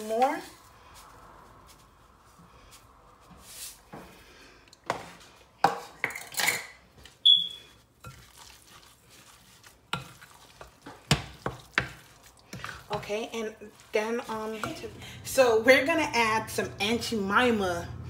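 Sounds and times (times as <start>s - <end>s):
utensils scraping mixing bowl: 8.0s - 16.4s.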